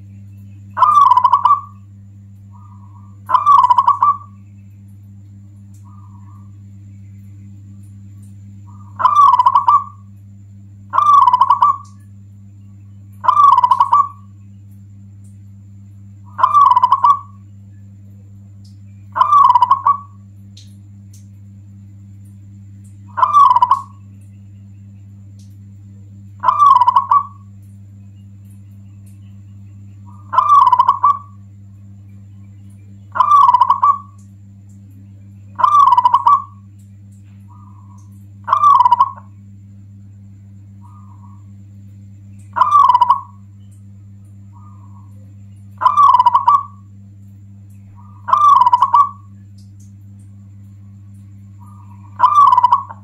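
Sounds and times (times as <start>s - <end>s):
low hum: 0.0s - 53.0s
dove cooing: 0.7s - 1.9s, 2.5s - 4.4s, 8.6s - 10.1s, 10.8s - 12.0s, 13.1s - 14.4s, 16.2s - 17.5s, 19.1s - 20.3s, 23.1s - 24.1s, 26.4s - 27.6s, 29.9s - 31.5s, 33.1s - 34.2s, 35.2s - 36.7s, 37.4s - 39.4s, 40.8s - 41.6s, 42.4s - 43.5s, 44.5s - 46.9s, 47.9s - 49.4s, 50.8s - 53.0s.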